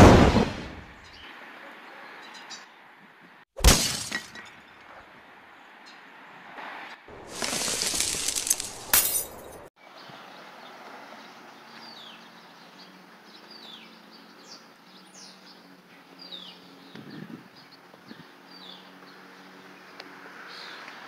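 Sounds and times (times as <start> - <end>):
glass breaking: 3.6 - 4.6, 7.2 - 9.7.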